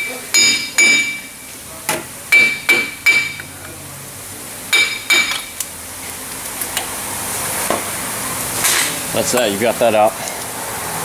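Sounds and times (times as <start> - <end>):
hammer striking metal: 0.0 - 1.3, 2.3 - 3.5, 4.7 - 5.5.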